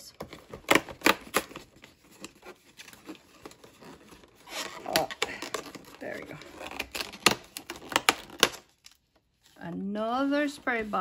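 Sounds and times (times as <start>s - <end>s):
cardboard tearing: 0.3s - 9.0s.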